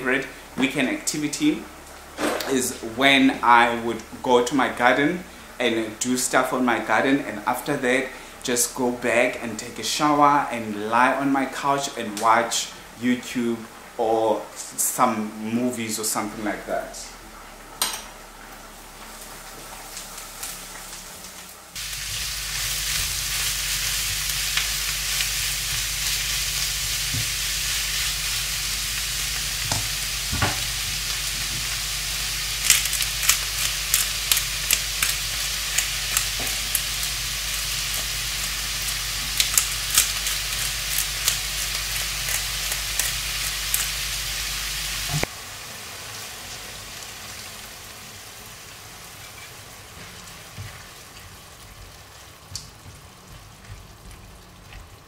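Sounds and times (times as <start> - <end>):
food sizzling in a pan: 16.6 - 54.7.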